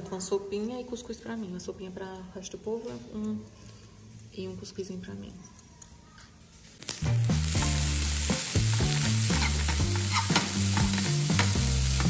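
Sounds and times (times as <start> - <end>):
meat sizzling in a frying pan: 6.8 - 12.0
fork scraping a pan: 8.8 - 12.0.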